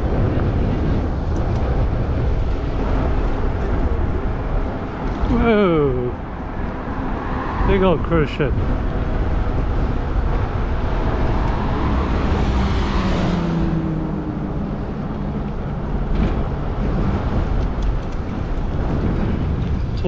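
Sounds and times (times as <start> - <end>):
low rumble of road noise: 0.0 - 20.0
car passing close by: 6.4 - 8.0, 10.2 - 17.6.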